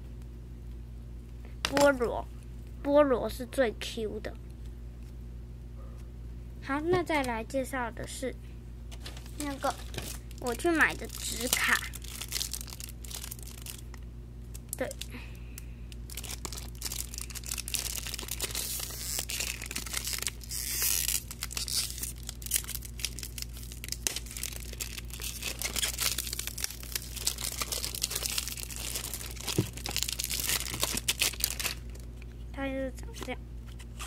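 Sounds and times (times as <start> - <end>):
plastic packaging crinkling: 8.9 - 15.2, 15.9 - 32.4
plastic packaging ripping: 9.0 - 15.1, 16.0 - 32.1.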